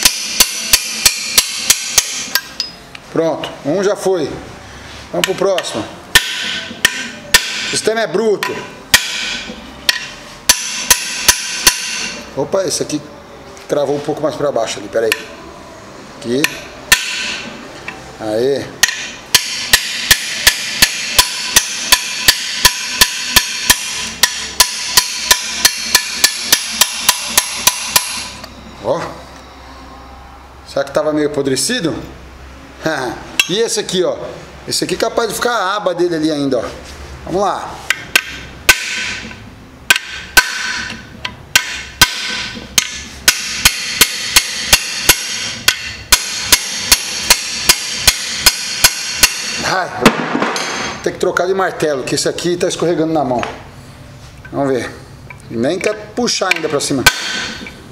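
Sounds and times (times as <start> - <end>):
hammer ringing on metal wrench: 0.0 - 2.8, 5.2 - 12.2, 16.4 - 17.5, 18.8 - 28.5, 33.4 - 33.6, 37.9 - 49.7, 55.9 - 57.7.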